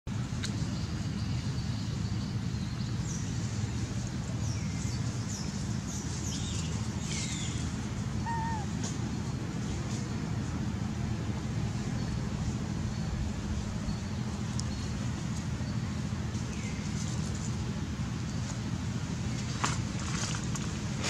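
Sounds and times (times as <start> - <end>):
steady low rumble: 0.1 - 21.0
short high chirping calls: 8.2 - 8.7.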